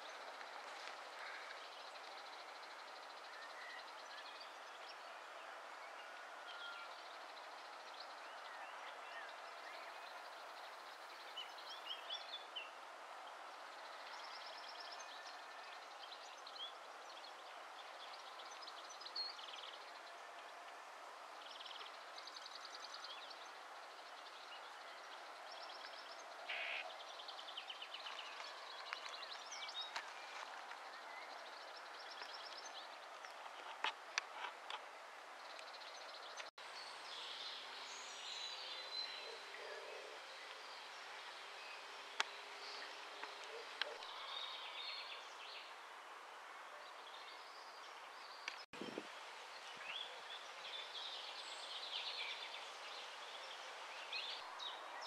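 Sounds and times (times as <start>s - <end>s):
steady background hiss: 0.0s - 55.0s
bird chirps: 25.6s - 27.1s.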